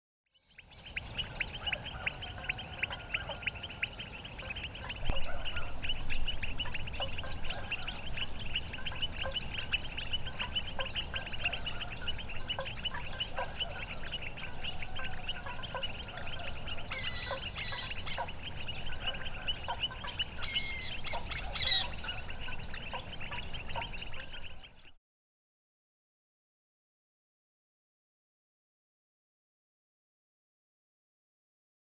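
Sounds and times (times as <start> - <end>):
high sliding calls: 1.2 - 24.5
chorus of short calls: 1.2 - 24.6
low wind rumble: 4.0 - 24.7.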